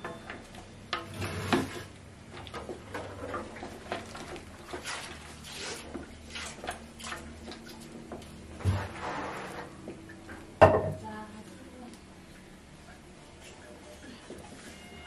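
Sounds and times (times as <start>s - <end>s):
loud knock on pot: 10.6s - 11.0s.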